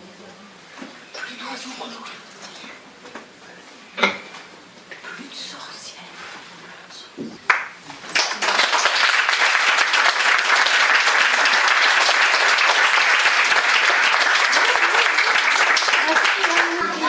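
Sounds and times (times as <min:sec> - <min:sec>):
audience applauding: 0:07.5 - 0:17.0.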